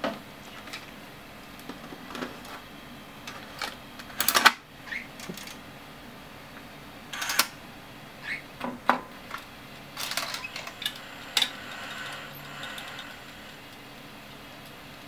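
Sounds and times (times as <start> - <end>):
tape drive clicks and clunks: 8.6 - 13.8
faint reel motor whirr: 9.8 - 15.0.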